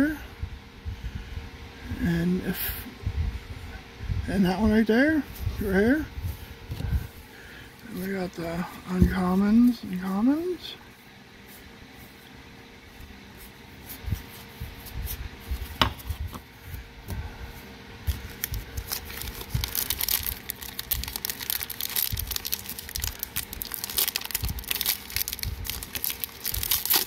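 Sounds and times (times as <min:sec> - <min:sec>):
foil wrapper crinkling and tearing: 0:18.1 - 0:27.0.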